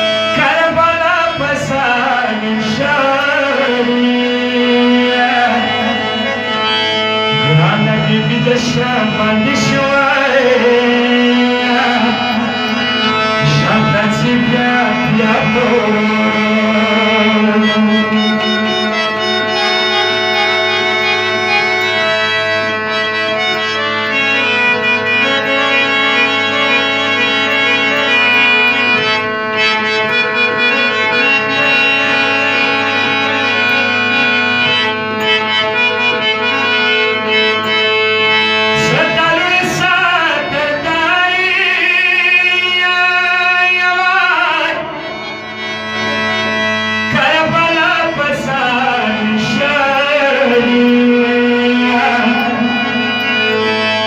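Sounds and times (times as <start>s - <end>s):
harmonium playing a melody: 0.0s - 54.0s
man singing a lament: 0.1s - 20.8s, 38.7s - 45.2s, 47.1s - 53.6s.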